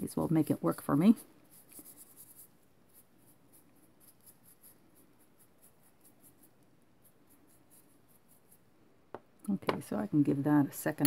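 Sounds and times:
paintbrush scrubbing: 0.3 - 8.7.

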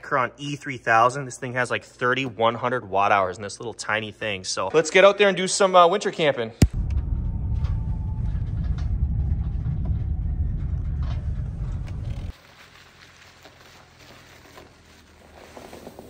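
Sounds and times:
vehicle driving rumble: 6.7 - 13.3.

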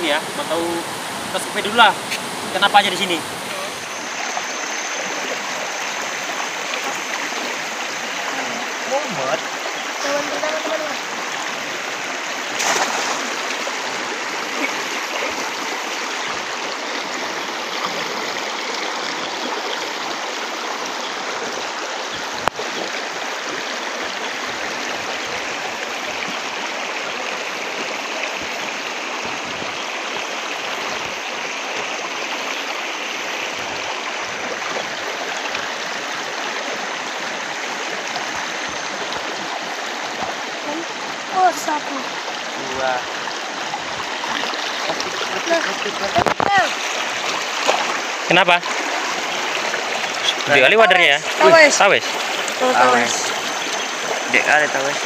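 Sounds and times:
river rushing: 0.0 - 55.0
cast net splashing on water: 12.5 - 13.7, 44.3 - 50.5.

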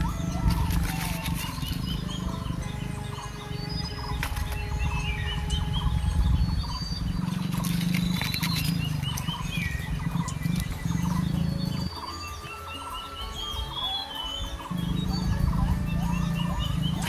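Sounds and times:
leaf litter rustling: 0.0 - 2.2
birds chirping and whistling: 0.0 - 17.0.

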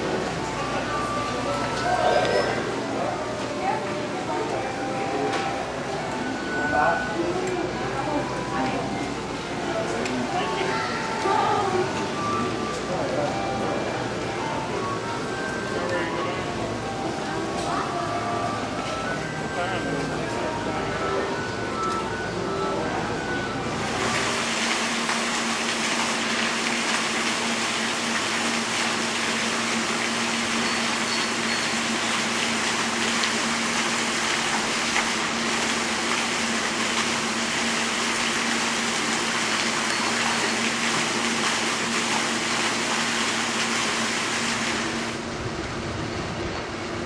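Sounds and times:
rushing water: 23.7 - 45.4.

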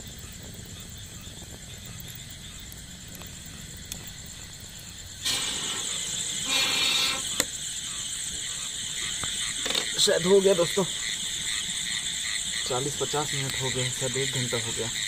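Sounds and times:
burning wood crackling: 0.0 - 15.0
air blown through pipe hissing: 3.4 - 9.6.

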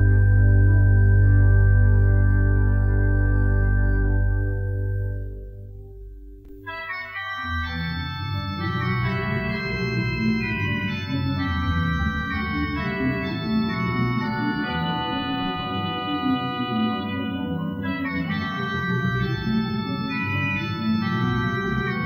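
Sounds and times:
deep organ bass notes: 0.0 - 22.0
pipe organ chords: 0.0 - 22.0.

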